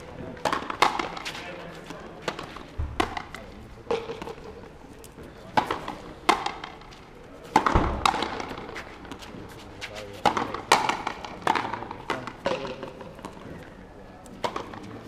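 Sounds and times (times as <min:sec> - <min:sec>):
racket striking ball: 0:00.4 - 0:01.4, 0:02.2 - 0:04.5, 0:05.5 - 0:06.9, 0:07.5 - 0:09.4, 0:10.2 - 0:13.5, 0:14.4 - 0:15.0.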